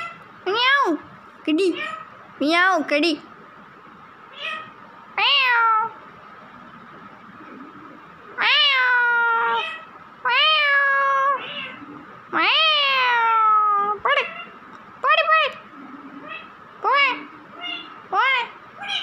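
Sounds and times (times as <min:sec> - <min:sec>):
parakeet mimicking cat meows: 0:00.0 - 0:01.0, 0:01.6 - 0:02.1, 0:04.3 - 0:06.0, 0:08.4 - 0:15.6, 0:16.2 - 0:19.0.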